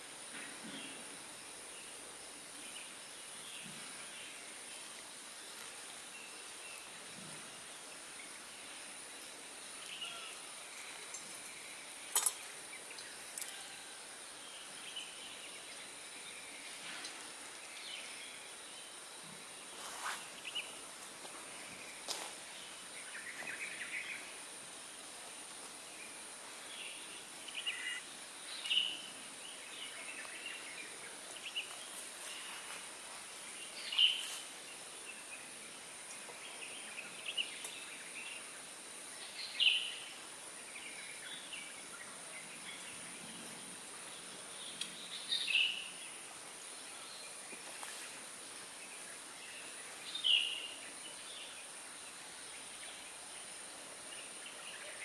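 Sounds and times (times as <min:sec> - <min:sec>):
faint bird chirps: 0:05.5 - 0:24.5, 0:26.0 - 0:32.8.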